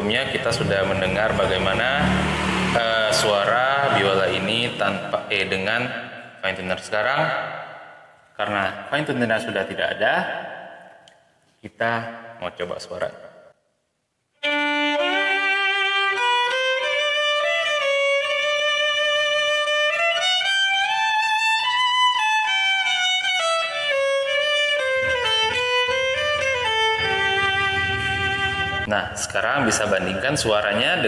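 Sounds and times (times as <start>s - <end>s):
violin playing slow melody: 14.4s - 28.9s.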